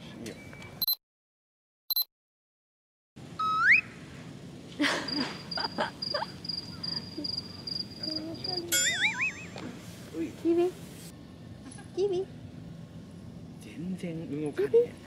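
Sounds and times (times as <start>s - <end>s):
short rising whistle: 3.4s - 3.9s.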